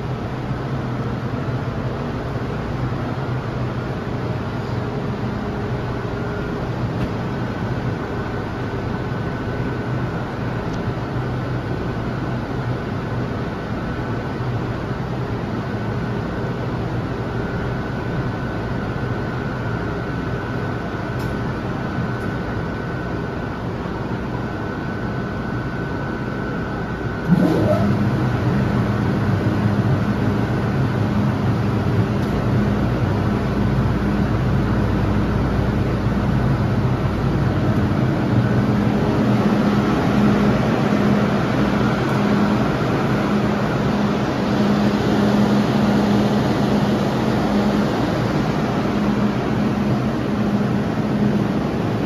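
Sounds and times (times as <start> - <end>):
machine whine and hum: 0.0 - 52.0.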